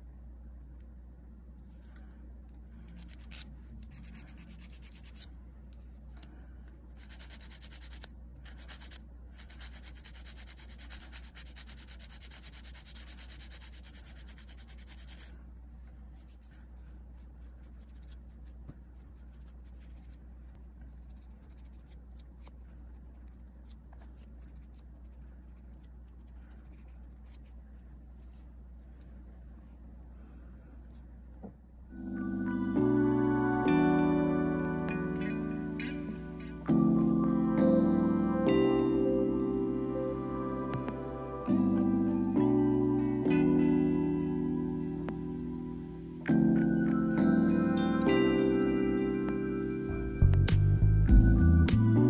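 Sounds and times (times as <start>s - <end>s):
nail file rasping: 2.9s - 5.3s, 7.0s - 15.3s.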